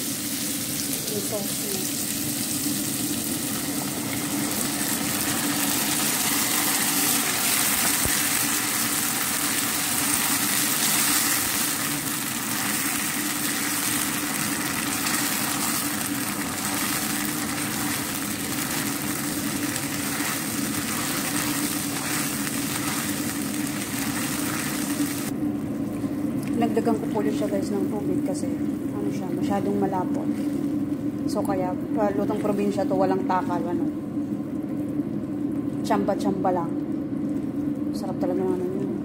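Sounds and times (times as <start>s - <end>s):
sauce cooking in wok: 0.0s - 38.0s
steady mechanical hum: 0.0s - 39.0s
spatula stirring in wok: 14.9s - 25.3s.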